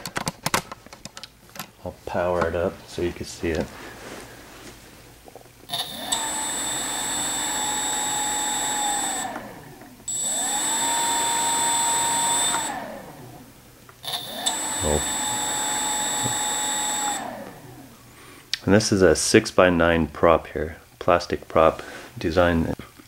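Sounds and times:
electric motor propeller whine: 5.7 - 18.0.

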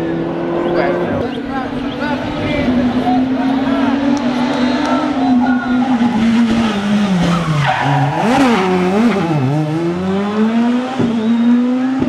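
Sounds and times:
rally car engine revving: 0.0 - 12.0
tyre squeal: 4.5 - 9.4.

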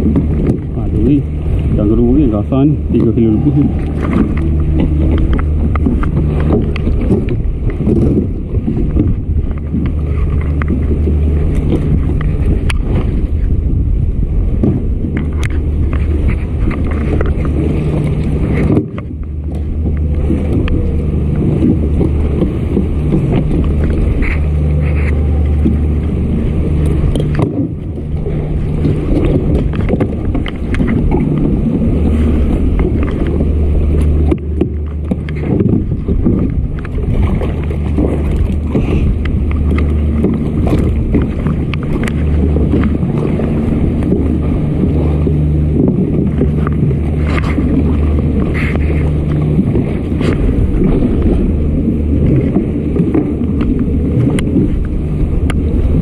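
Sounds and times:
low drone: 0.0 - 56.0
wind buffeting microphone: 0.0 - 56.0.

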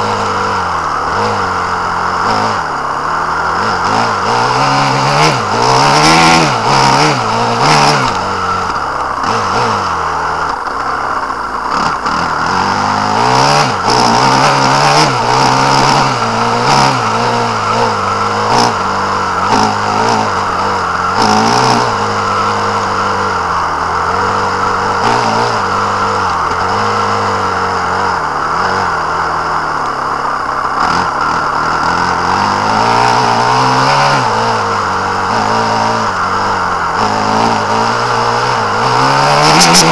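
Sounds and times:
off-road vehicle engine revving: 0.0 - 39.9.

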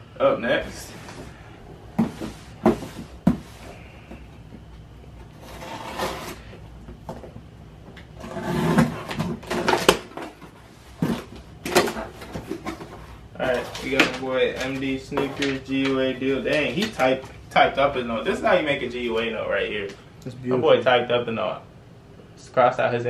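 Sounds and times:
rustling and scraping packaging: 0.5 - 7.4, 8.1 - 19.4
cardboard boxes being handled: 1.9 - 4.6.

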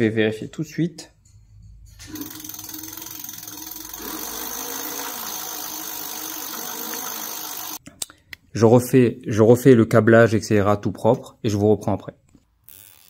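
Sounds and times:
electric motor whirring: 2.1 - 7.8.

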